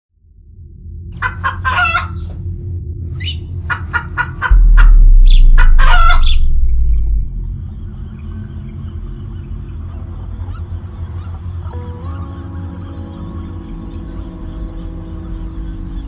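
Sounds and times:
low rumble: 0:00.2 - 0:01.3, 0:02.1 - 0:10.5
bird calls: 0:03.2 - 0:16.0
deep bass boom: 0:04.5 - 0:09.9.

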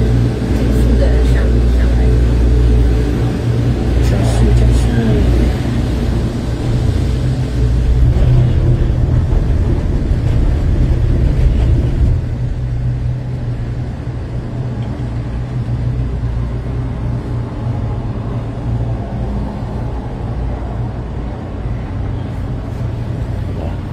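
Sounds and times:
cable car cabin rumble: 0:00.0 - 0:23.9.

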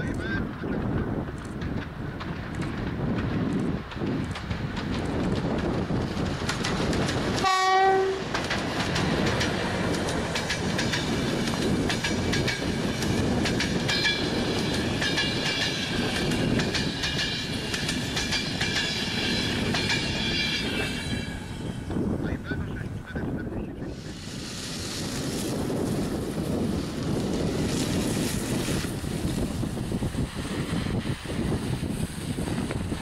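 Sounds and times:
train wheels clattering: 0:01.4 - 0:22.0
train horn blast: 0:07.4 - 0:08.3
high squealing ring: 0:20.0 - 0:21.7.

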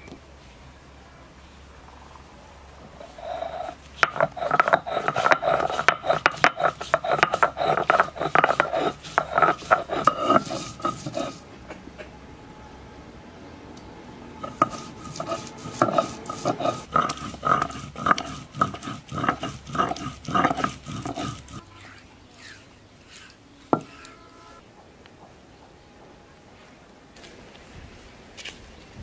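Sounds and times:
stone roller grinding on stone: 0:03.0 - 0:11.5, 0:14.4 - 0:24.2.

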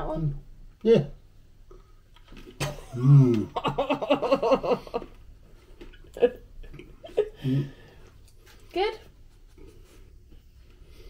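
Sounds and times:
person humming mmm: 0:02.9 - 0:03.5.

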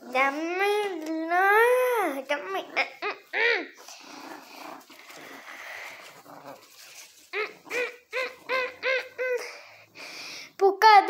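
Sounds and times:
blanket rustling and dragging: 0:04.0 - 0:07.7.

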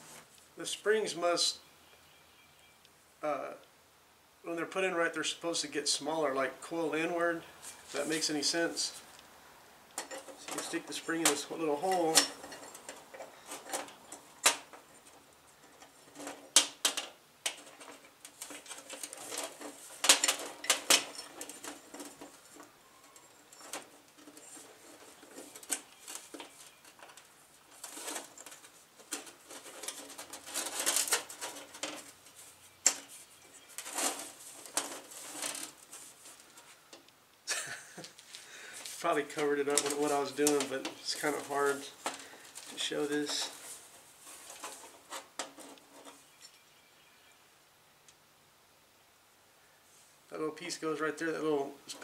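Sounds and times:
metal parts scraping: 0:10.0 - 0:36.6, 0:38.8 - 0:46.6.

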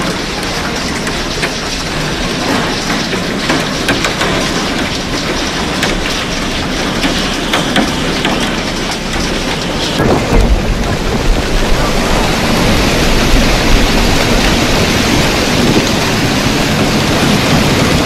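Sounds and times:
hail and rain on car roof: 0:00.0 - 0:18.0
low rumble: 0:09.3 - 0:18.0.

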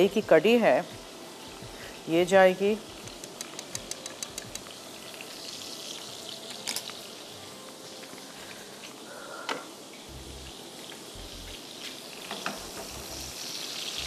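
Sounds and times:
utensil clicking against pan: 0:03.0 - 0:04.8.

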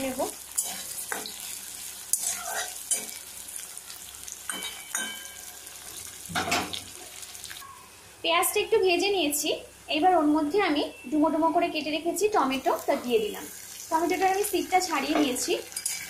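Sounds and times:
onions sizzling in hot oil: 0:00.0 - 0:07.6, 0:12.1 - 0:16.0
metal spatula scraping pan: 0:00.6 - 0:01.4, 0:02.1 - 0:03.2.

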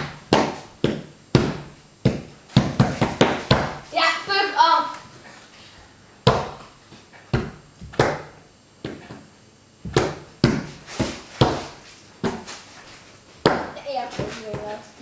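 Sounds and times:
hands slapping a tabletop: 0:00.0 - 0:03.8, 0:06.3 - 0:12.6, 0:13.4 - 0:14.7.

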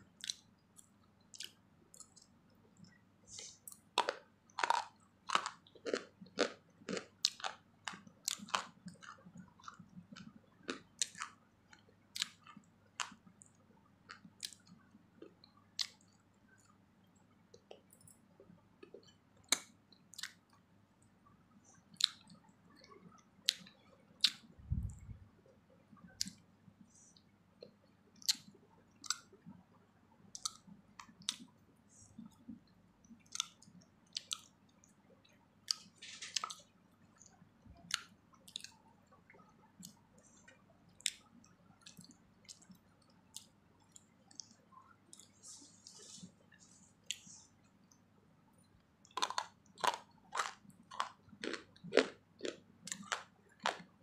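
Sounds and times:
person chewing: 0:00.2 - 0:02.3, 0:03.3 - 0:13.3, 0:14.1 - 0:16.7, 0:18.8 - 0:20.4, 0:21.9 - 0:25.1, 0:30.3 - 0:32.2, 0:33.1 - 0:34.5, 0:35.6 - 0:38.8, 0:41.8 - 0:47.6, 0:49.0 - 0:54.0.

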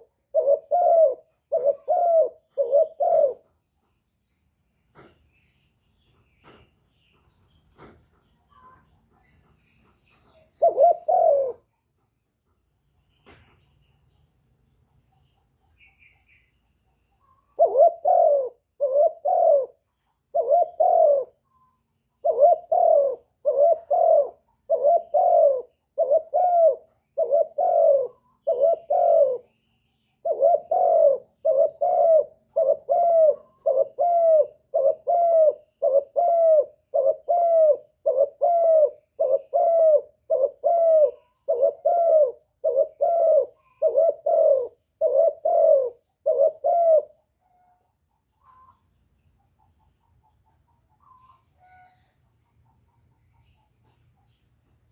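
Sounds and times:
dove cooing: 0:00.0 - 0:03.6, 0:07.8 - 0:11.8, 0:17.2 - 0:47.8.

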